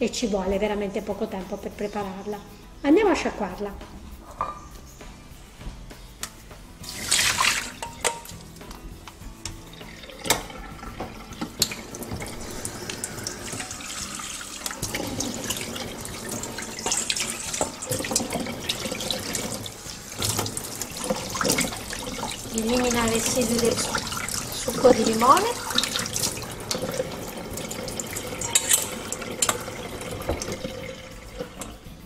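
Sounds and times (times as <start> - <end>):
metal bowl clinks and knocks: 4.2 - 4.7, 7.5 - 8.8, 28.3 - 30.8
tap water running into sink: 6.8 - 32.0.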